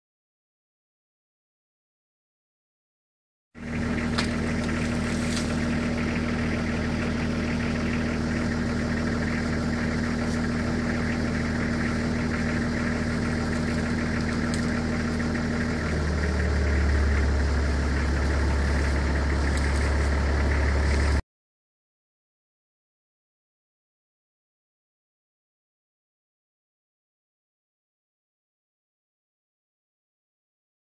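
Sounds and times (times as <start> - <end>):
vehicle engine idling: 3.6 - 21.2.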